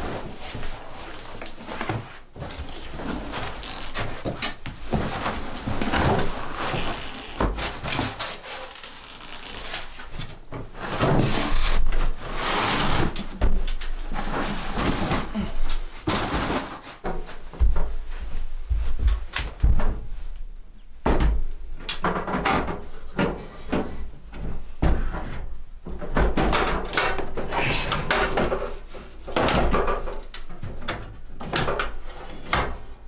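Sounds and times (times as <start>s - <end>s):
cardboard and packing rustling: 0.0s - 20.3s.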